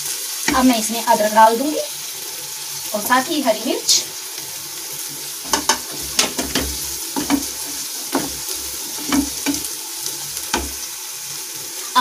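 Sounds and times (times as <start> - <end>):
vegetables sizzling in hot oil: 0.0 - 12.0
spatula scraping and knocking pan: 0.4 - 0.8, 4.4 - 11.0.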